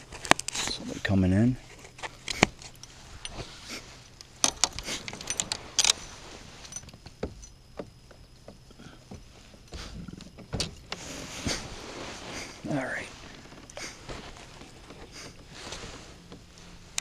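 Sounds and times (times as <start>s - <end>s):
fishing tackle clicking and rattling: 4.2s - 6.1s.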